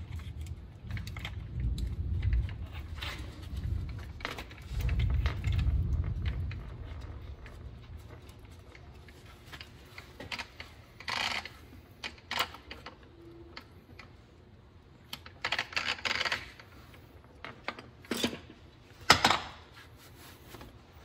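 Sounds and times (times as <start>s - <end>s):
handling clicks and rattles: 0.0s - 14.2s.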